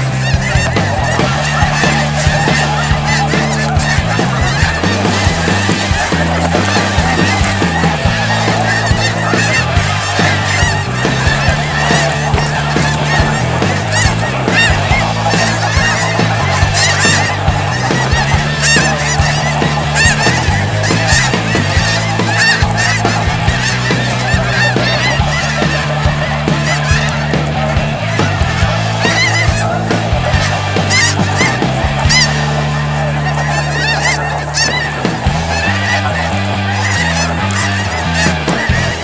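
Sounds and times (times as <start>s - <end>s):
snow geese honking: 0.0s - 39.0s.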